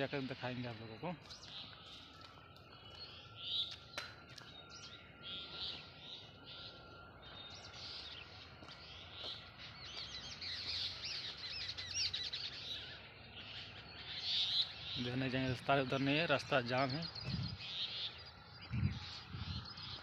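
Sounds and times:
birds chirping and calling: 0:00.0 - 0:20.0.

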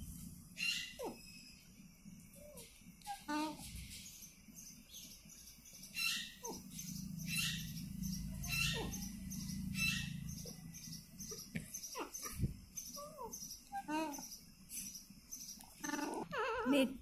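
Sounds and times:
low steady hum: 0:00.0 - 0:17.0
parakeet calls: 0:00.6 - 0:01.4, 0:02.5 - 0:16.7.

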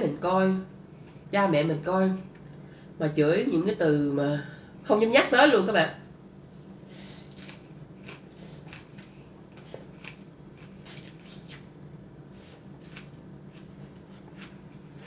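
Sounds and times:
faint low hum: 0:00.0 - 0:15.0
slurping and chewing: 0:07.2 - 0:11.7, 0:12.3 - 0:15.0.

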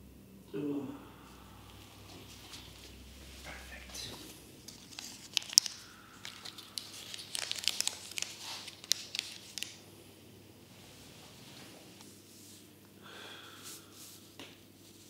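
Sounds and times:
packaging crinkling and tearing: 0:04.6 - 0:09.8.

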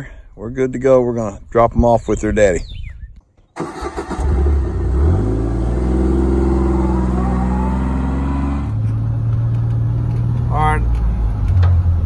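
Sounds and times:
utility vehicle engine pulling away: 0:03.6 - 0:10.4.

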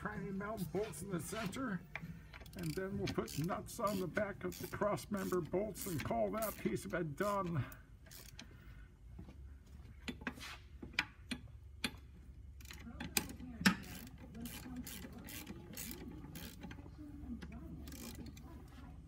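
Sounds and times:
hand ratchet clicking: 0:01.9 - 0:08.6, 0:11.0 - 0:18.5.

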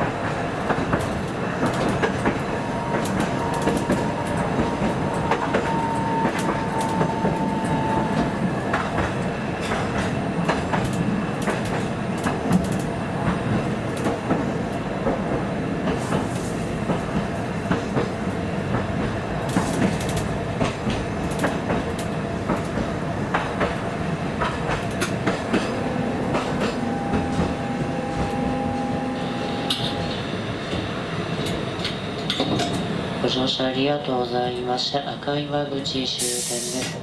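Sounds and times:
tram running rumble: 0:00.0 - 0:37.0
wheel and rail-joint clicks: 0:00.7 - 0:15.2, 0:18.7 - 0:23.8
two-pitched whine: 0:25.7 - 0:30.4.

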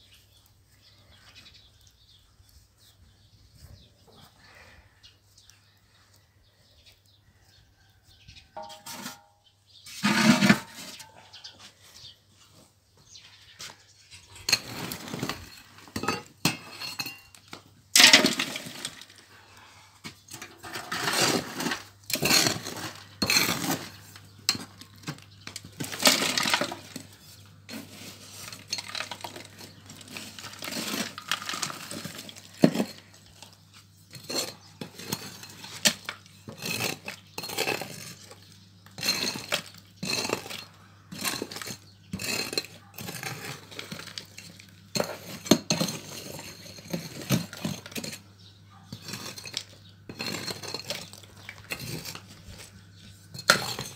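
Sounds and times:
metal tool scraping through embers: 0:08.6 - 0:11.5, 0:14.0 - 0:19.2, 0:20.2 - 0:53.9.

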